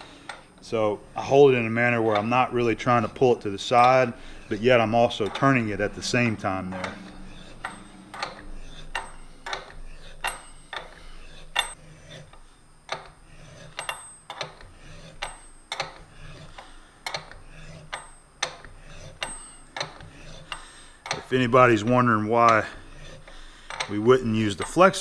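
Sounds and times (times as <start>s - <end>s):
wrench clicking on metal tap: 6.8s - 11.0s, 23.2s - 24.0s.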